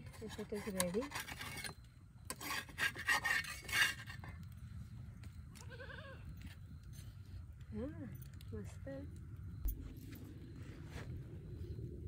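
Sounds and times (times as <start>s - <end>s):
metal spatula scraping griddle: 0.0s - 4.3s
goat bleat: 5.6s - 6.2s.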